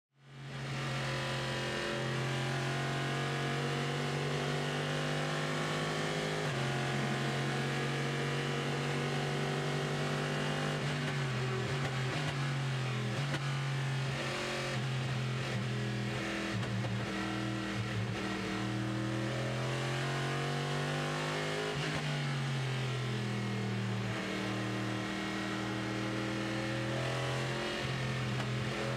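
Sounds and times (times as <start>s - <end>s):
race car engine at speed: 0.2s - 28.9s.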